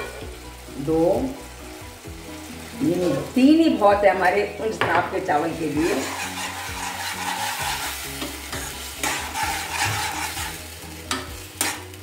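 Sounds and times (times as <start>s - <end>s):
paste sizzling: 0.0s - 12.0s
metal spatula scraping a pan: 5.6s - 12.0s.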